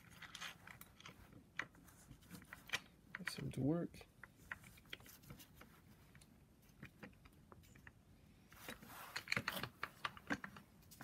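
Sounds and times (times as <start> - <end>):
metallic clicks of tools and bolts: 2.3 - 5.0.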